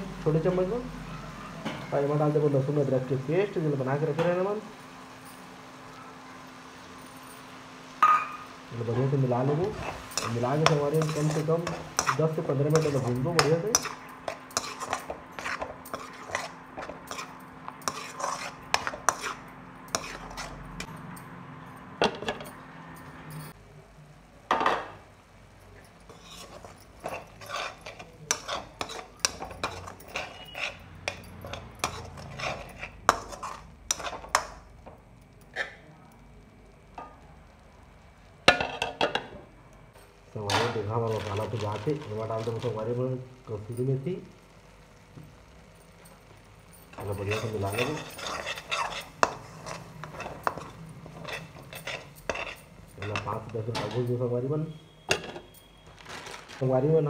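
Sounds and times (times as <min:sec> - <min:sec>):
sauce frying: 0:00.0 - 0:23.1, 0:24.5 - 0:54.7
spatula scraping metal pan: 0:09.0 - 0:20.9, 0:26.1 - 0:34.6, 0:40.6 - 0:43.0, 0:46.9 - 0:54.1.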